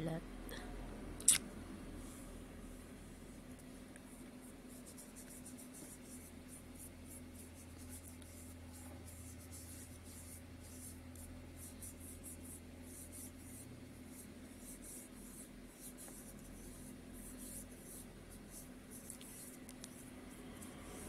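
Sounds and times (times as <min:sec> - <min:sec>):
steady low hum: 0:00.0 - 0:21.0
fingertips rubbing on skin: 0:14.6 - 0:21.0.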